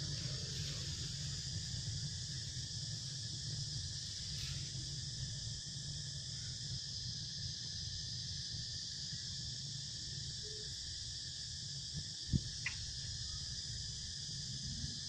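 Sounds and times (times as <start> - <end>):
low steady rumble: 0.0 - 10.4
insects droning high-pitched: 0.0 - 15.0.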